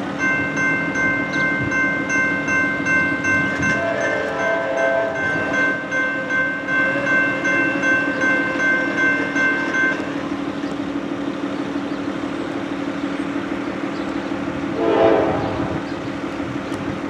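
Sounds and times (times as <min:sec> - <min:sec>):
crossing warning bell ringing: 0:00.0 - 0:16.3
train horn: 0:03.6 - 0:07.3, 0:14.7 - 0:15.9.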